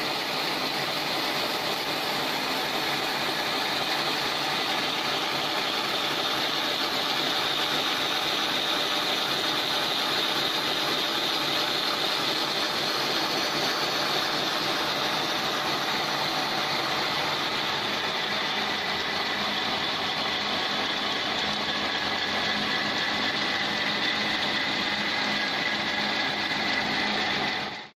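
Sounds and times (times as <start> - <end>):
machine whirring: 0.0 - 27.9.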